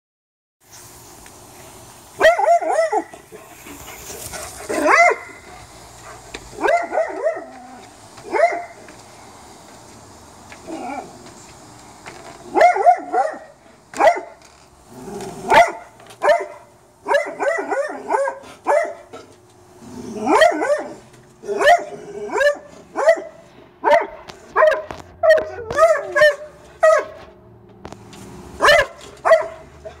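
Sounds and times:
dog barking: 0:02.2 - 0:03.1, 0:04.7 - 0:05.4, 0:06.6 - 0:07.6, 0:08.3 - 0:08.8, 0:12.5 - 0:14.4, 0:15.5 - 0:19.1, 0:20.3 - 0:21.0, 0:21.6 - 0:27.2, 0:28.6 - 0:30.0.

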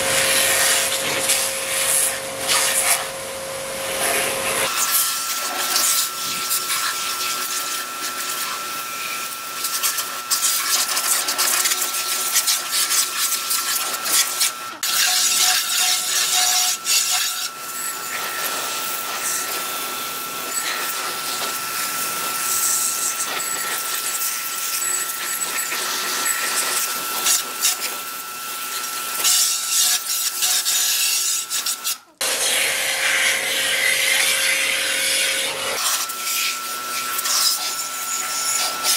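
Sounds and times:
thin steady whine: 0:00.0 - 0:10.6, 0:11.2 - 0:29.6, 0:31.3 - 0:38.9
pressure washer spray hissing: 0:00.1 - 0:03.1, 0:29.2 - 0:38.9.

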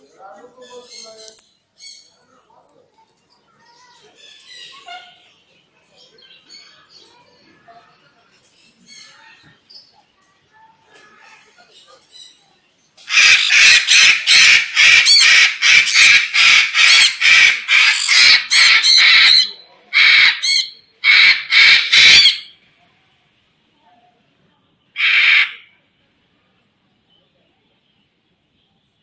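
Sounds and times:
cockatoo screeching: 0:13.1 - 0:22.5, 0:25.0 - 0:25.7.

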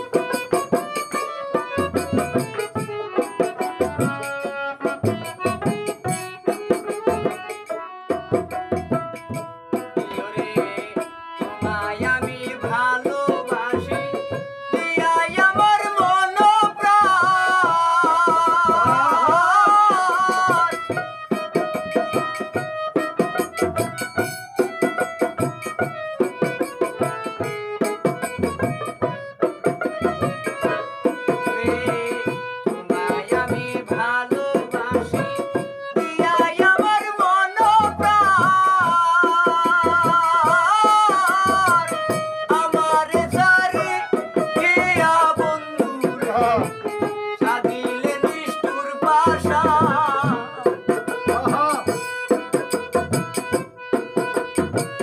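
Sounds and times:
hand drum beating: 0:00.0 - 0:55.0
harmonium melody: 0:00.0 - 0:55.0
man singing: 0:09.7 - 0:22.1, 0:30.0 - 0:52.6.

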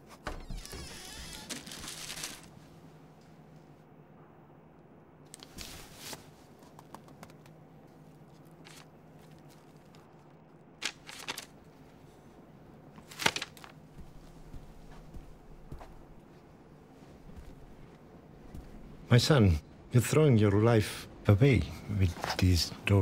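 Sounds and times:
paper pages turning: 0:01.3 - 0:02.5, 0:08.3 - 0:11.6, 0:13.0 - 0:13.8
bedding rustling: 0:05.4 - 0:06.6.

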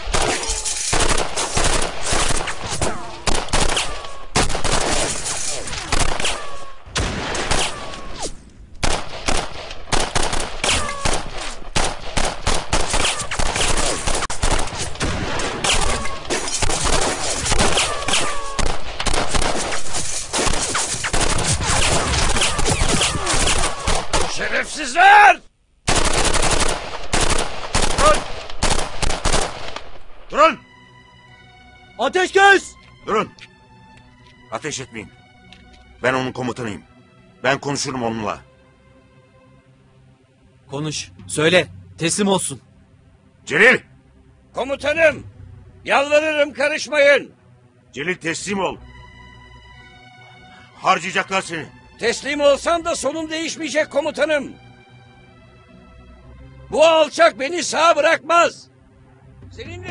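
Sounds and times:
automatic rifle fire: 0:08.8 - 0:11.2, 0:25.9 - 0:29.7.

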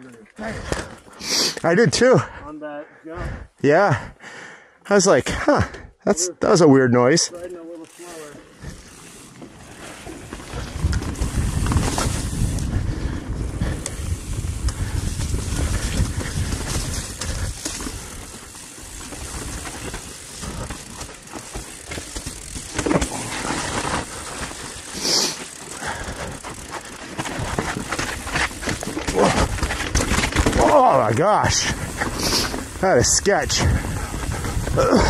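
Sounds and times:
bike tyres rolling over dirt: 0:07.1 - 0:35.0.

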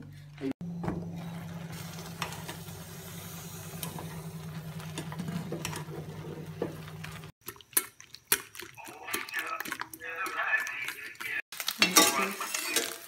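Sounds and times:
noodles boiling in water: 0:01.4 - 0:13.0
utensil clicks stirring noodles: 0:07.4 - 0:11.4.

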